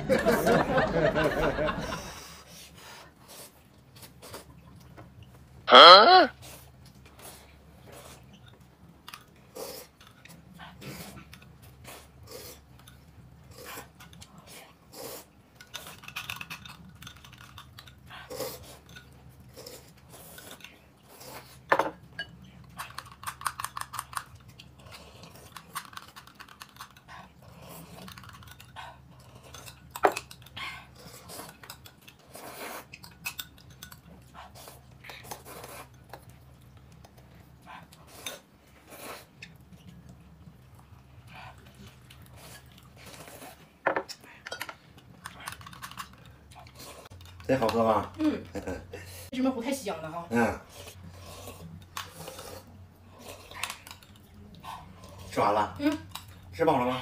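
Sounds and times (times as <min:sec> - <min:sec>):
chewing: 0:06.4 - 0:49.3, 0:50.4 - 0:57.0
noodle slurping: 0:50.6 - 0:55.4.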